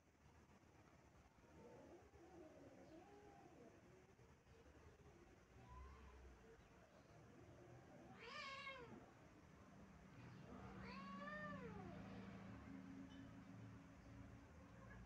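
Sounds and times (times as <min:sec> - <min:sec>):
cat meowing: 0:08.1 - 0:09.0, 0:10.8 - 0:12.0.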